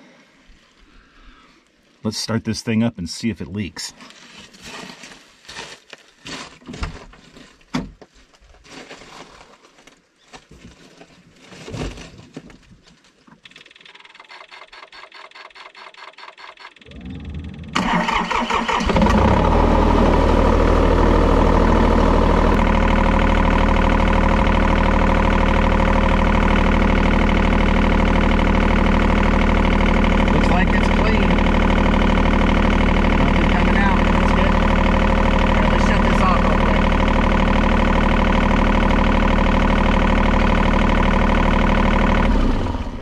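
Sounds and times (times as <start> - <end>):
diesel engine starting and idling: 13.9 - 43.0.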